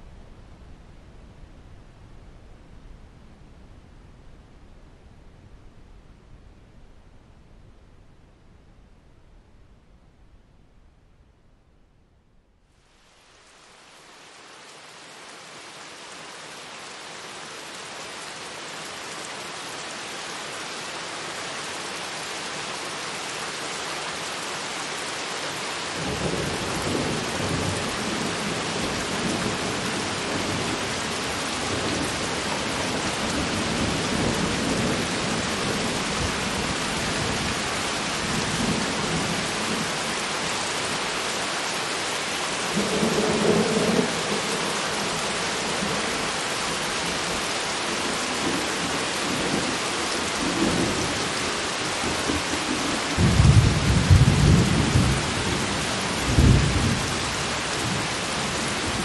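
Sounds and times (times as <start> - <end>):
steady rain falling: 0.0 - 59.0
thunder rumbling: 52.0 - 59.0.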